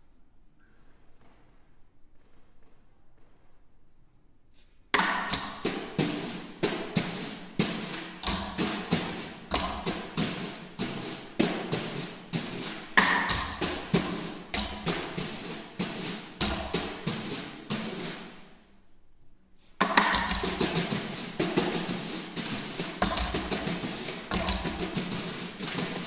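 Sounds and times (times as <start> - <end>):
snare drum strokes: 5.0 - 18.6, 19.7 - 26.0.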